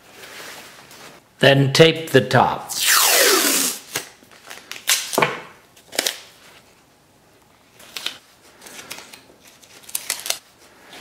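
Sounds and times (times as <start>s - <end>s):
tape and paper crinkling: 7.7s - 11.0s.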